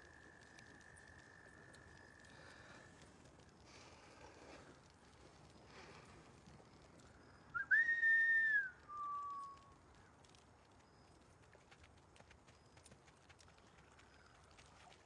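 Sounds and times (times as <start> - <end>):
person whistling two notes: 7.6 - 9.6.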